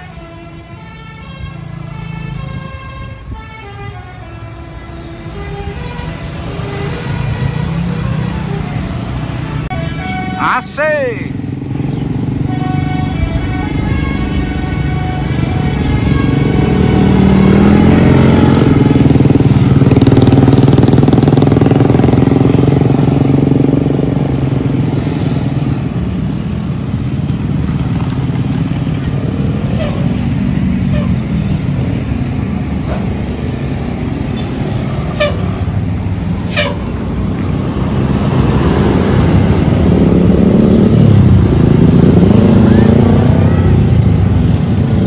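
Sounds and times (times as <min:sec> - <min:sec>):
bus coming up road: 0:00.0 - 0:45.0
motorcycles and cars passing: 0:00.0 - 0:45.0.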